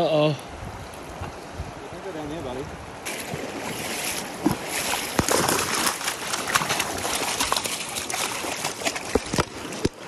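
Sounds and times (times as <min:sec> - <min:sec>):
water splashing in stony river: 0:02.8 - 0:10.0.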